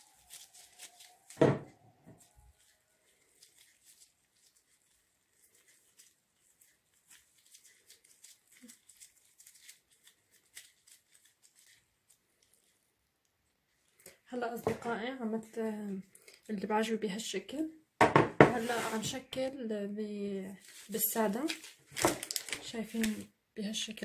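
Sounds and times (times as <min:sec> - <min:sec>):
sticky dough crackles: 0:00.0 - 0:14.3
plastic glove rustling: 0:00.0 - 0:17.3, 0:18.4 - 0:19.5, 0:20.4 - 0:23.3
thump: 0:01.4 - 0:01.7, 0:18.0 - 0:18.6.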